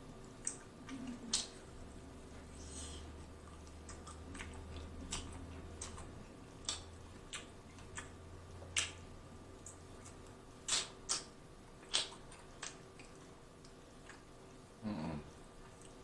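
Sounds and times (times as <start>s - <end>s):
person chewing and gnawing: 3.2s - 14.4s.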